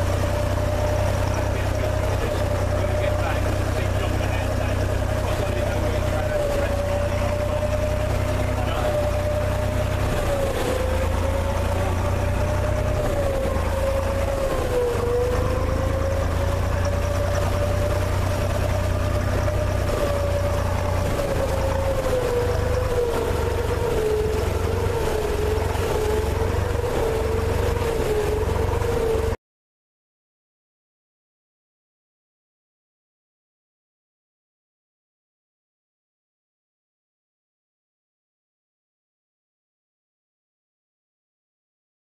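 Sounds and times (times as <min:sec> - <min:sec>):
boat engine rumbling: 0:00.0 - 0:29.4.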